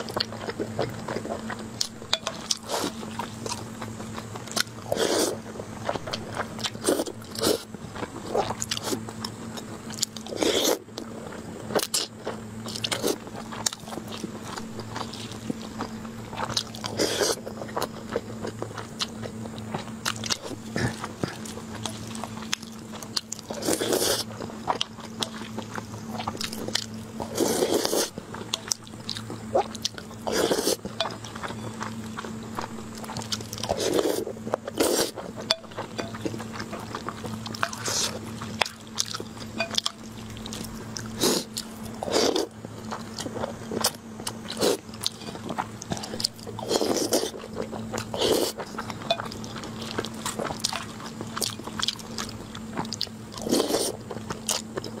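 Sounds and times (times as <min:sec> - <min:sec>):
close chewing and biting: 0:00.0 - 0:55.0
steady low hum: 0:00.0 - 0:55.0.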